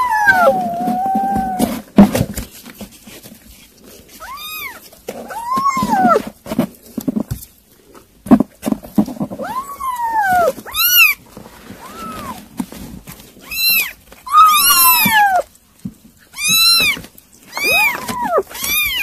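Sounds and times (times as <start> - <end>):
kittens mewing: 0.0 - 1.8, 4.2 - 6.3, 9.4 - 11.2, 11.8 - 12.4, 13.4 - 15.5, 16.3 - 19.0.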